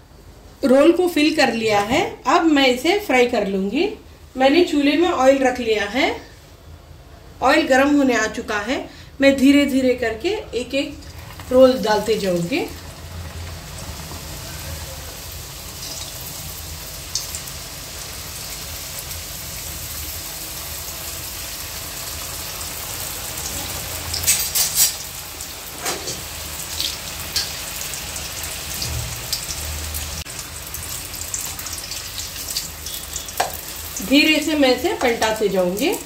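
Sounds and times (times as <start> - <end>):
food deep-frying in oil: 10.6 - 36.0.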